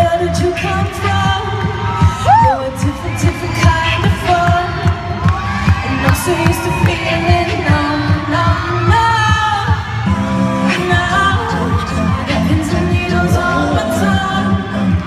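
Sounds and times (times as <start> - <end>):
steady pop beat: 0.0 - 15.0
people singing in harmony: 6.2 - 15.0.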